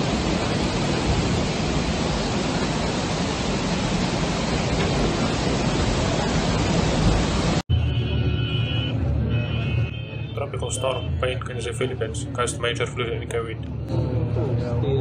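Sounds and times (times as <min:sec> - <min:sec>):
floodwater rushing: 0:00.0 - 0:07.7.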